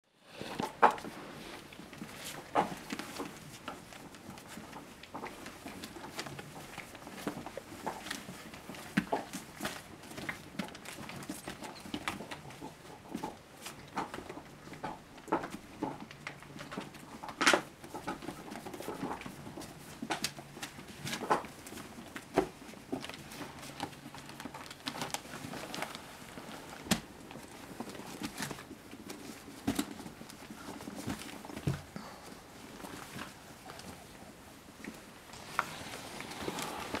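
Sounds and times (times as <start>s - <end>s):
rustling newspaper: 17.4s - 37.0s.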